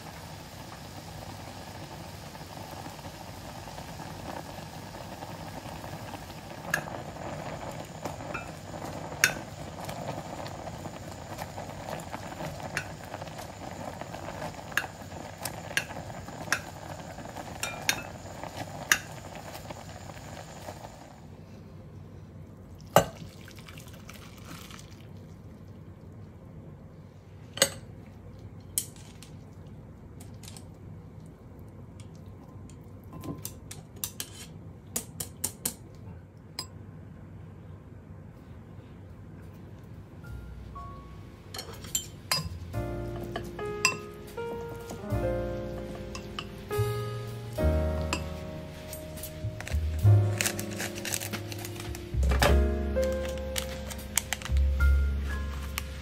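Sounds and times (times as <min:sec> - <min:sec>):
food sizzling in a pan: 0:00.0 - 0:21.3, 0:42.1 - 0:56.0
metal utensils clinking on cookware: 0:41.6 - 0:42.6.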